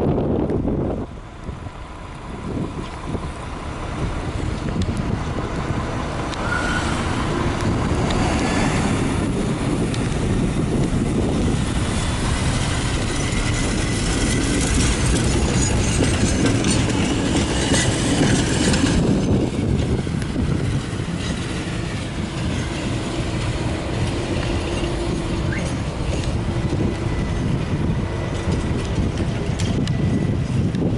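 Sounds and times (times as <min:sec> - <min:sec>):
traffic noise: 0:00.0 - 0:30.9
tram passing on tracks: 0:00.0 - 0:30.9.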